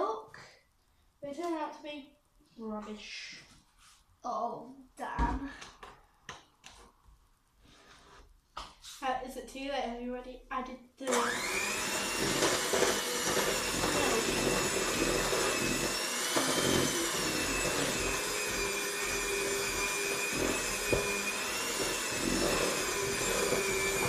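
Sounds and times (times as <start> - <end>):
electric hand mixer whining: 11.1 - 24.0.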